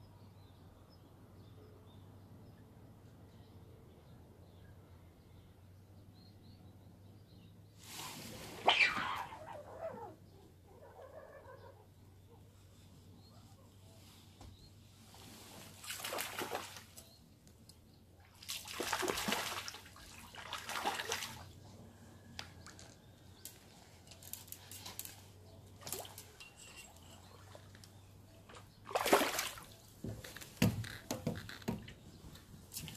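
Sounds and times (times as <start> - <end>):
fish splashing in water: 15.8 - 17.0, 18.3 - 21.6, 28.8 - 29.8.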